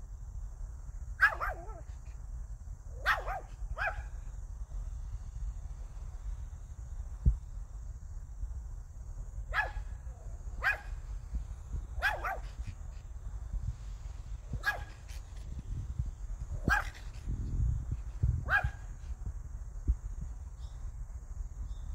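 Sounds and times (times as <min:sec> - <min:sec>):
small dog barking: 0:01.2 - 0:02.0, 0:02.9 - 0:04.2, 0:09.5 - 0:11.0, 0:12.0 - 0:12.8, 0:14.6 - 0:15.2, 0:16.6 - 0:17.2, 0:18.4 - 0:19.0.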